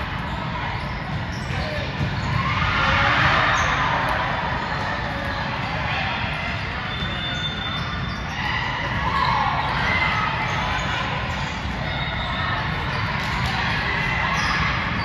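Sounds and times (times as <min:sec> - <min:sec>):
crowd noise in large hall: 0:00.0 - 0:15.0
ball bouncing on hard court: 0:00.9 - 0:04.2.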